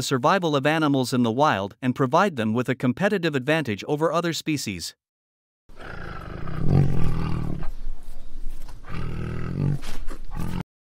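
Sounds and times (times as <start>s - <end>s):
big cat roaring: 5.7s - 7.8s, 8.8s - 10.6s.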